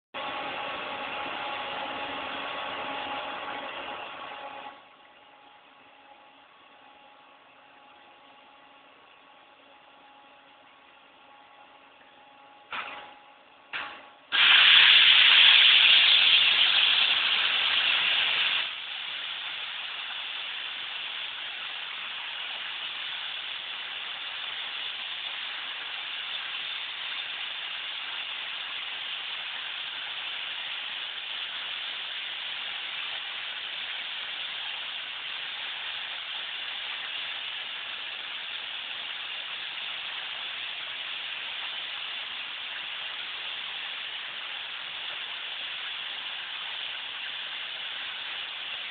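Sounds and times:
plasma cutter hissing: 13.8 - 48.9.

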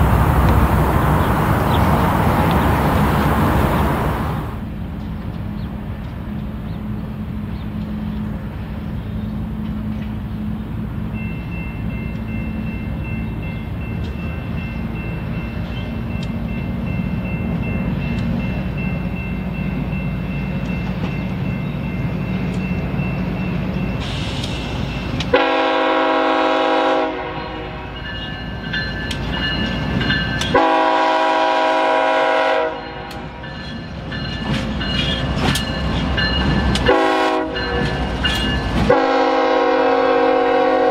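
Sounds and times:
diesel locomotive engine rumbling: 0.0 - 40.9
train air horn blasts: 25.3 - 27.9, 30.5 - 33.4, 36.8 - 37.8, 38.8 - 40.9.

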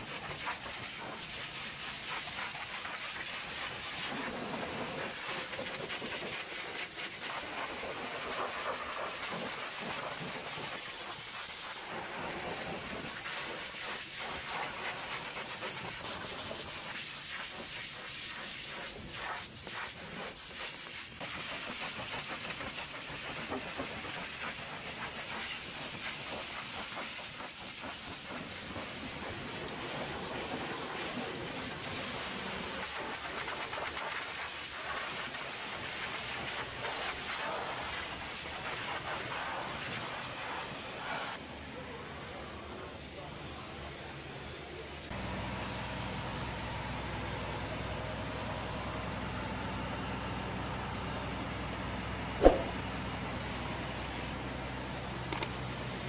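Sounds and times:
pressure washer spraying metal: 0.0 - 41.4.

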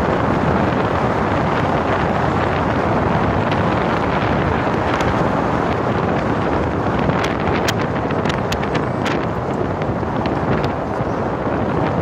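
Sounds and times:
road and engine noise: 0.0 - 12.0
wind rushing over microphone: 0.0 - 12.0.

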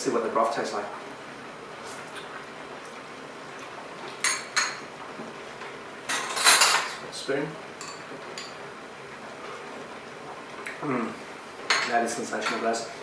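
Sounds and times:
utensils clinking on a bowl: 6.1 - 7.0, 7.8 - 8.6, 11.7 - 12.8.

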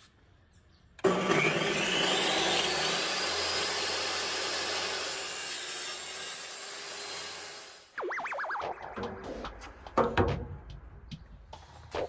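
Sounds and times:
table saw whine: 1.0 - 8.0.

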